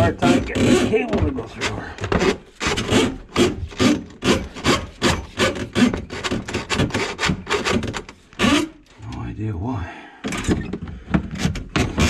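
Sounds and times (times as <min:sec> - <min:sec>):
drain auger cable scraping: 0:00.0 - 0:09.0.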